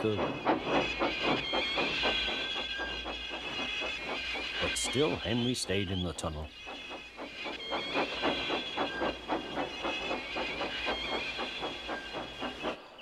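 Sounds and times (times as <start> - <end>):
steam hiss: 0.0 - 13.0
steam locomotive chuffing: 0.0 - 13.0.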